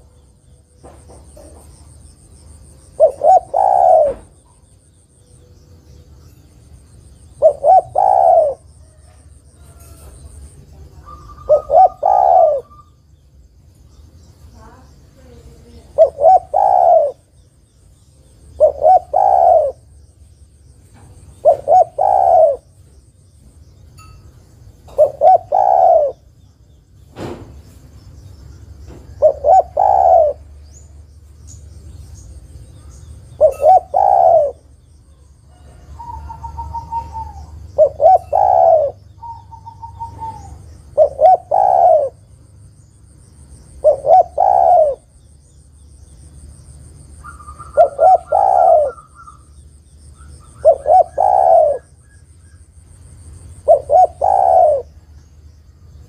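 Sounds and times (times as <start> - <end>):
dove cooing: 2.6 - 4.7, 7.2 - 13.0, 15.5 - 17.4, 18.4 - 20.0, 21.1 - 22.8, 24.9 - 26.4, 28.9 - 30.9, 33.3 - 42.4, 43.7 - 45.2, 47.2 - 49.5, 50.1 - 52.6, 53.5 - 55.1.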